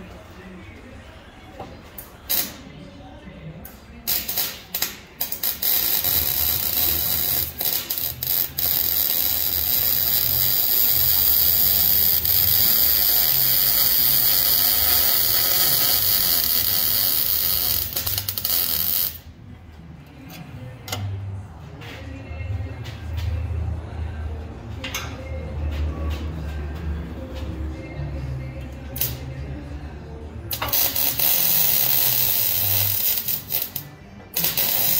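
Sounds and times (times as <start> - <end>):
electric arc welding crackling: 2.3 - 2.6, 4.1 - 19.3, 30.5 - 34.9.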